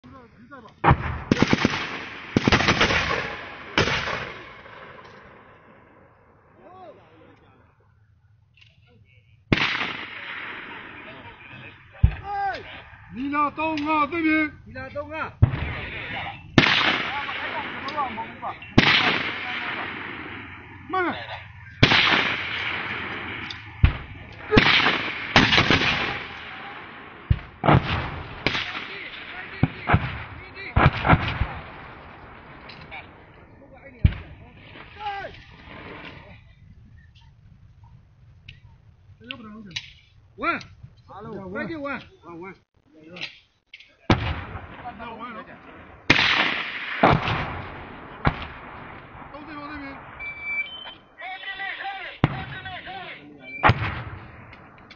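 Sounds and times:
heavy mortar report: 0.0s - 37.1s, 43.9s - 54.9s
gunshots with long echo: 0.8s - 6.6s, 9.5s - 12.2s, 15.4s - 36.1s, 44.1s - 50.6s, 53.6s - 54.9s.

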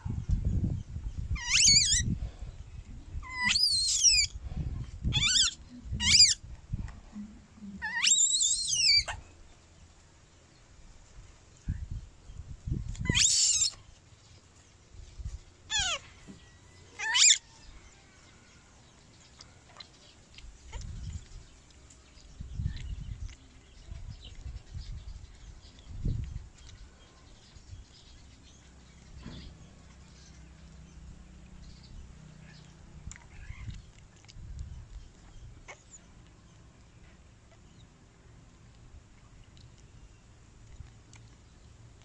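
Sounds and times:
baby monkey crying shrilly: 1.4s - 2.0s, 3.2s - 4.3s, 5.1s - 6.4s, 7.8s - 9.2s, 13.0s - 13.8s, 15.7s - 16.1s, 17.0s - 17.4s.

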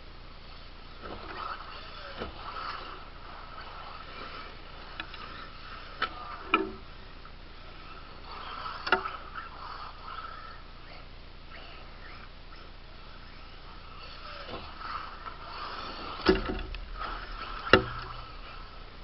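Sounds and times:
electric motor whine: 0.0s - 19.0s
sharp knocks: 16.0s - 18.6s.

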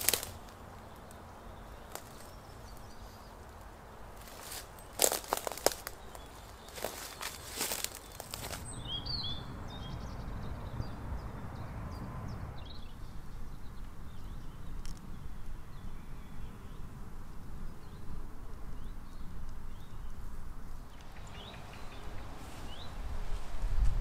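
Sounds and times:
footsteps through dry grass: 0.0s - 8.7s, 21.0s - 24.0s
small birds chirping: 0.0s - 23.1s.

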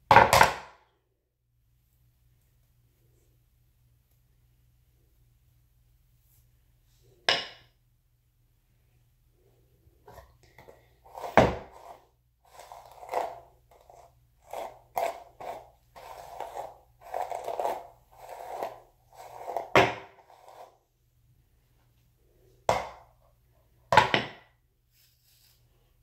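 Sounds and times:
hairbrush through curly hair: 11.1s - 20.8s.

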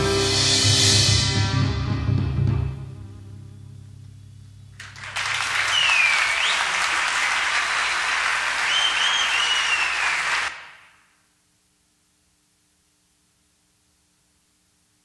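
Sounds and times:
audience applauding: 4.8s - 11.0s
whistles: 5.3s - 6.9s, 8.5s - 11.0s.

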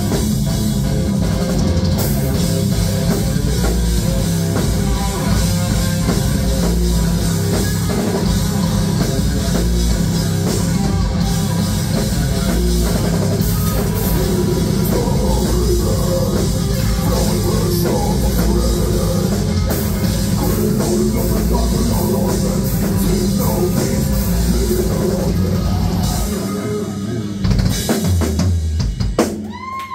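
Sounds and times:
distorted electric guitar: 0.0s - 29.2s
bass guitar: 0.0s - 29.9s
pounding drum kit: 0.0s - 29.9s
vocals: 13.9s - 27.7s.

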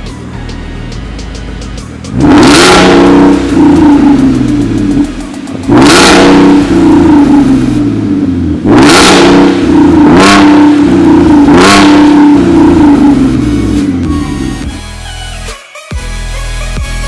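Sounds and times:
car engine revving from idle: 0.8s - 14.1s.

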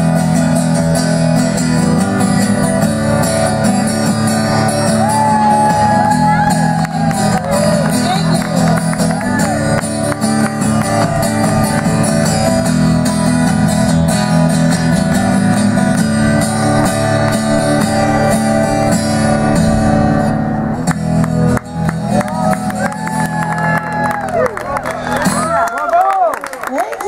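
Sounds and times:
acoustic guitar strumming: 0.0s - 25.5s
audience cheering: 4.9s - 9.8s, 22.1s - 27.0s.

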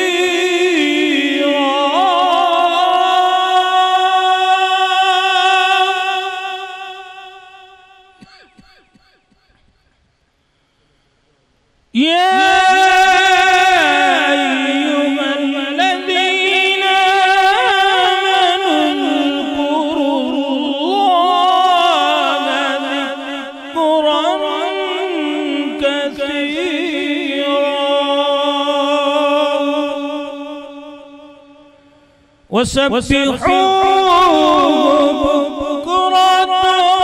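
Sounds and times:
man chanting melodically: 0.0s - 9.7s, 12.0s - 31.7s, 32.5s - 37.0s.

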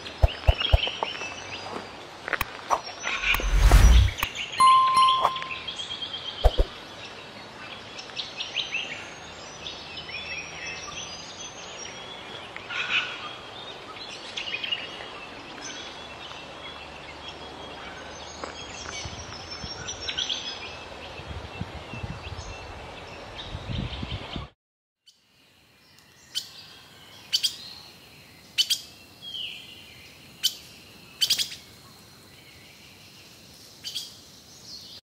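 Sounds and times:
steady outdoor hiss: 0.0s - 23.7s, 25.1s - 35.0s
songbirds chirping: 0.0s - 24.4s, 25.1s - 35.0s
electronic ding: 4.6s - 5.7s.

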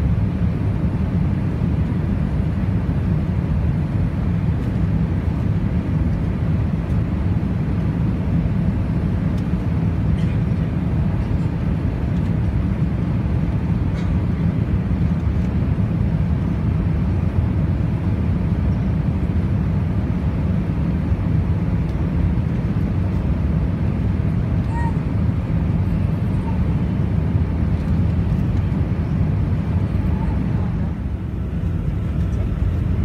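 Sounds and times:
airplane cabin engine rumble: 0.0s - 33.0s.

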